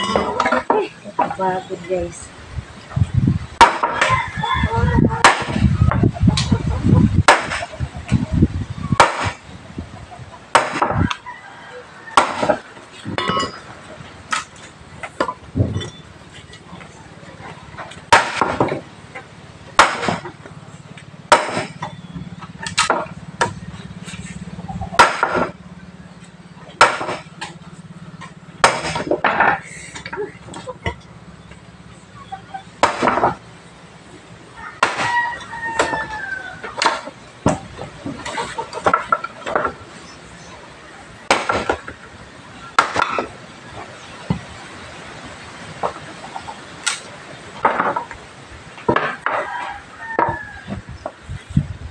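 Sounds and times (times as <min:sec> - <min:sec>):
wood chopping strikes: 0:03.6 - 0:04.2, 0:05.2 - 0:06.1, 0:07.2 - 0:07.7, 0:09.0 - 0:09.4, 0:10.5 - 0:11.2, 0:12.2 - 0:13.6, 0:18.0 - 0:18.9, 0:19.7 - 0:20.4, 0:21.3 - 0:22.0, 0:22.6 - 0:23.6, 0:25.0 - 0:25.6, 0:26.8 - 0:27.6, 0:28.2 - 0:30.1, 0:32.8 - 0:33.4, 0:34.8 - 0:36.0, 0:36.6 - 0:39.8, 0:41.2 - 0:42.0, 0:42.8 - 0:43.4.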